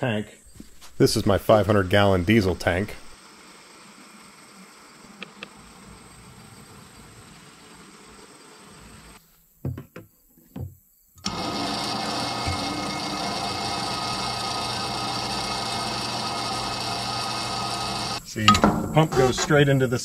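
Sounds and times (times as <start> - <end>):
electric fuel pump humming and whining: 11.2 - 19.5
sharp knocks: 18.5 - 19.5.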